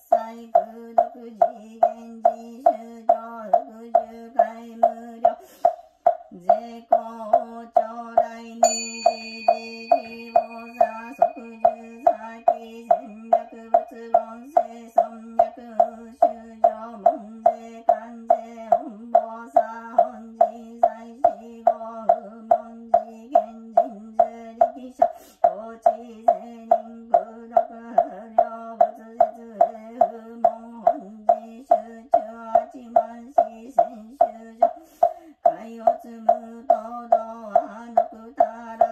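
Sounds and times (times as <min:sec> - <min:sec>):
wooden fish drum knocking: 0:00.6 - 0:38.9
monotone chanting: 0:06.3 - 0:34.8
singing bowl bell ringing: 0:08.6 - 0:14.2.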